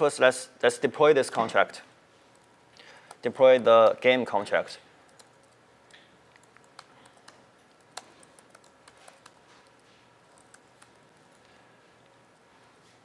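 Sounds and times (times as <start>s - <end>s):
laptop keyboard keystrokes: 5.1s - 11.0s.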